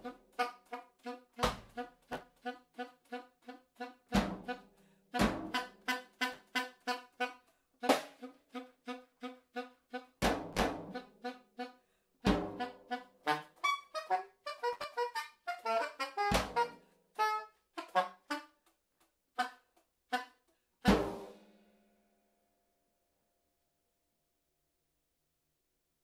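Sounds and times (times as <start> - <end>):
saxophone short notes: 0.0 - 10.2, 10.9 - 11.8, 12.5 - 18.5
drum and cymbal strikes: 20.9 - 21.6.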